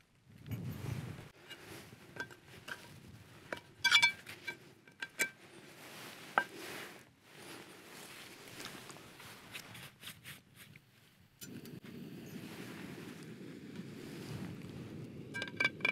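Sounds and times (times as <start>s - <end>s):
ringing metal clatter: 2.2s - 5.4s
metal pan clinking: 3.5s - 5.4s.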